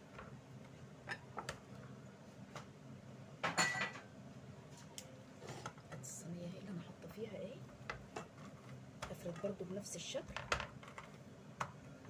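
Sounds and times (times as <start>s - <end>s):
kitchenware clatter with ring: 3.4s - 4.1s
kitchenware clinking: 3.4s - 4.1s.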